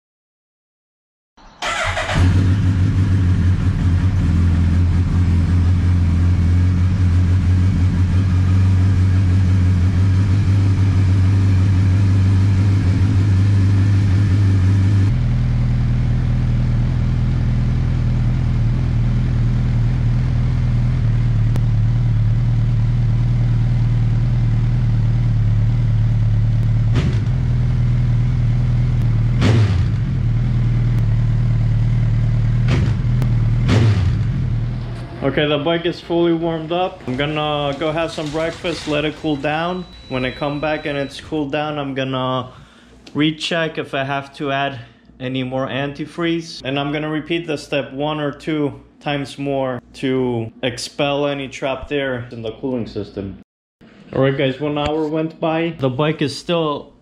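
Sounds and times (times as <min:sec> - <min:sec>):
motorcycle engine starting and idling: 0:01.6 - 0:39.2.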